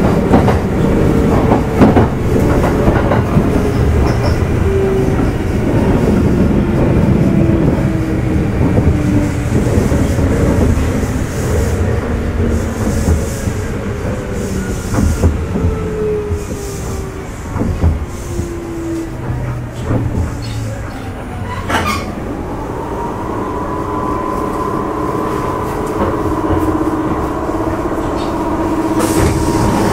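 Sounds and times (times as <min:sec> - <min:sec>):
train running rumble: 0:00.0 - 0:29.9.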